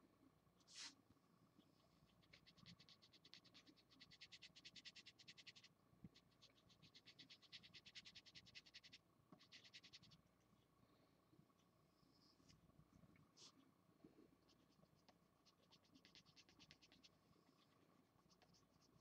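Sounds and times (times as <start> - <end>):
marker scratching on paper: 0.7 - 1.0, 2.3 - 10.1, 15.4 - 17.1.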